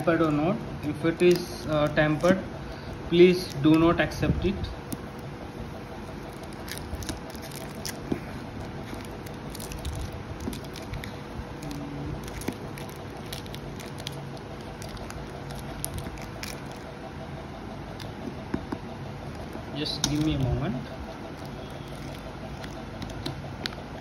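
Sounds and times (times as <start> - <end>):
fingers peeling cardboard envelope strip: 6.0 - 16.9, 21.2 - 24.0
paper crinkling and clicks: 6.0 - 16.9, 17.9 - 24.0.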